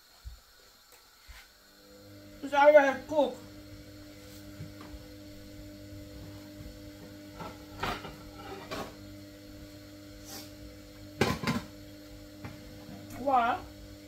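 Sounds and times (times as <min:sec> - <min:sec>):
steady low hum: 0:00.2 - 0:14.0.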